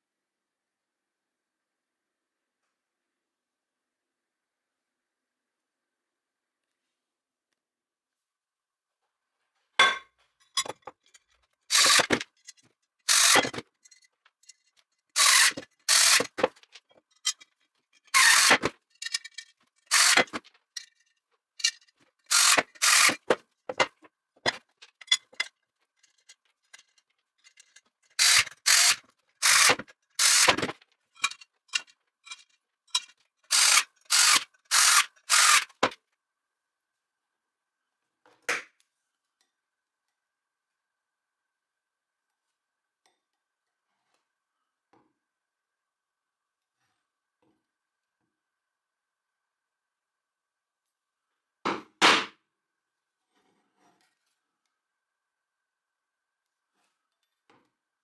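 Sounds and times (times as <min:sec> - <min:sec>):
metal parts scraping and clicking: 0:10.4 - 0:36.0.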